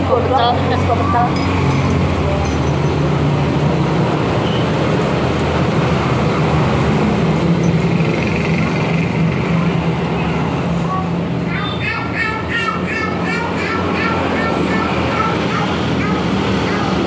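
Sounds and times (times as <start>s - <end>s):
road traffic noise: 0.0s - 17.0s
vehicle engine humming: 0.0s - 17.0s.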